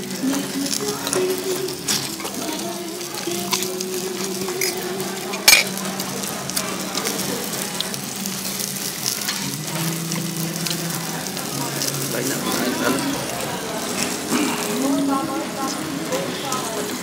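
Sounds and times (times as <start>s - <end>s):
food sizzling in hot oil: 0.0s - 17.0s
utensil clink: 4.6s - 5.8s.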